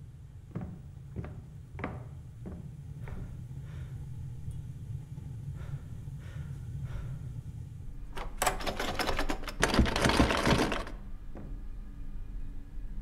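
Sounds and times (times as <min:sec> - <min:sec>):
low hum: 0:00.0 - 0:13.0
door lock clicking and rattling: 0:08.1 - 0:11.0.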